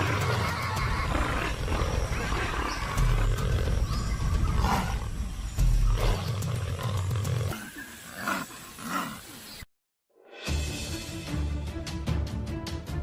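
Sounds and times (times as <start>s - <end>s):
harsh animal calls: 0.0s - 5.2s.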